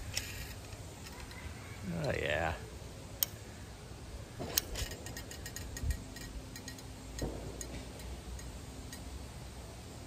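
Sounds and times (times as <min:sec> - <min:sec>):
small clicks and ticks: 0:04.6 - 0:09.1.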